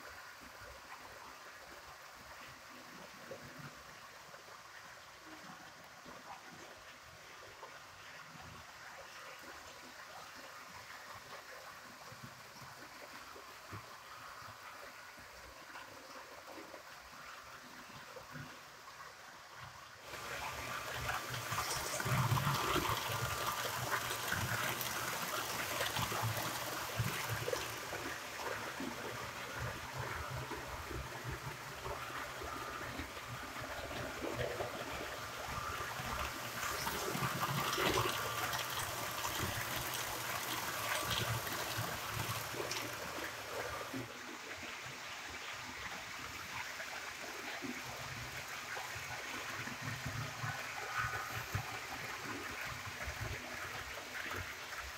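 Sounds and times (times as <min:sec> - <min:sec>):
model train wheels rolling: 0:20.1 - 0:30.2, 0:31.7 - 0:43.9.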